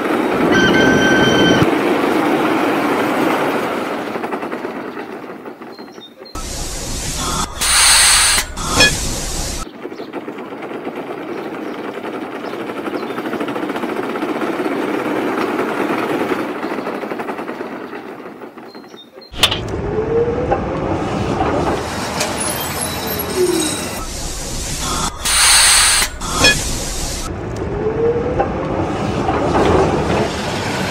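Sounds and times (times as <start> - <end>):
tram wheels rumbling on rails: 0.0 - 30.9
tram wheels squealing: 0.4 - 1.7, 4.7 - 10.1, 16.4 - 27.3.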